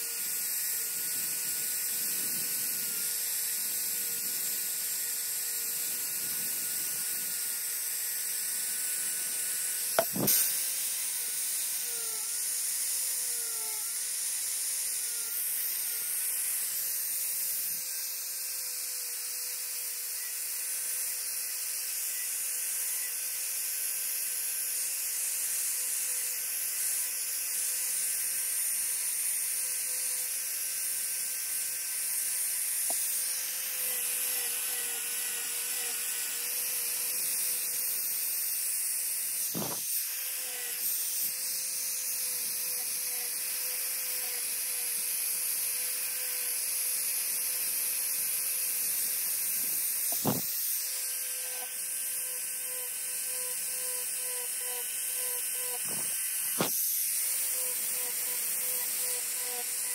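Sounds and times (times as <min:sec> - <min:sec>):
angle grinder carving wood: 0:00.0 - 0:59.9
short thump: 0:10.0 - 0:10.4, 0:39.6 - 0:39.8, 0:50.1 - 0:50.5.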